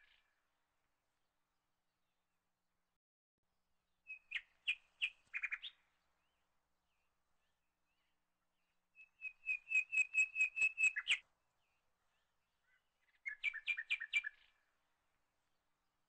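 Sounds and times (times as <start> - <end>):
bird chirping: 4.0 - 14.7.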